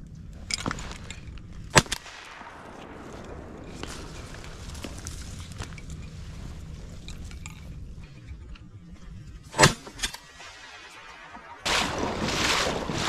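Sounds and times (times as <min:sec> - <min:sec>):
shotgun blasts: 0:01.7 - 0:03.9, 0:09.5 - 0:13.0.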